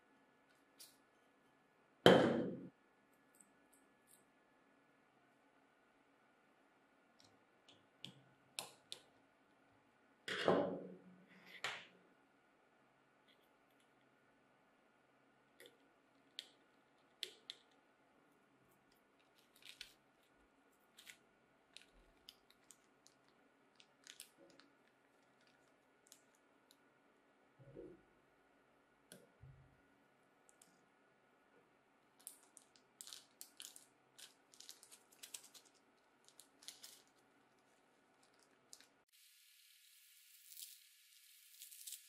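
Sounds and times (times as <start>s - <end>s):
plastic bag of screws crinkling: 19.2s - 20.2s, 20.9s - 26.4s, 32.2s - 39.0s, 40.4s - 40.8s, 41.4s - 42.0s.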